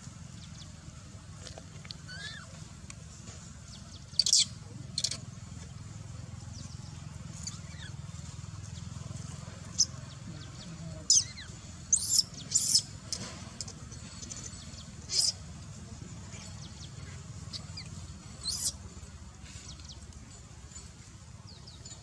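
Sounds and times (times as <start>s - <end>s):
low steady hum: 0.0s - 22.0s
baby monkey squeaking cries: 2.1s - 2.5s, 11.1s - 12.9s, 15.1s - 15.4s, 18.4s - 18.8s.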